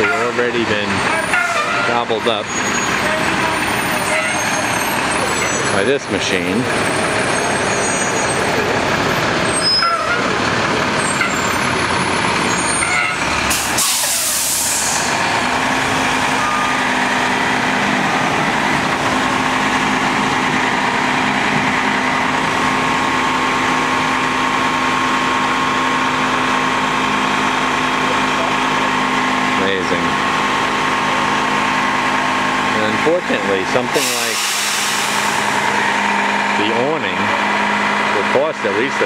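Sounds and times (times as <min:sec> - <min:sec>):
diesel engine running: 0:00.0 - 0:39.0
sharp hiss of air: 0:13.6 - 0:15.0.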